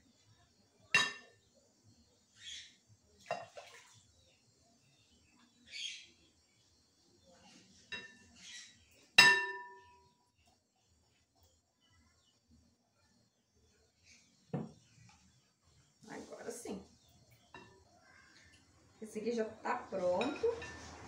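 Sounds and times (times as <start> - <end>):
glass bowl clinking: 1.0 - 1.4, 3.3 - 3.7, 7.9 - 8.4, 9.2 - 10.1, 20.1 - 21.0.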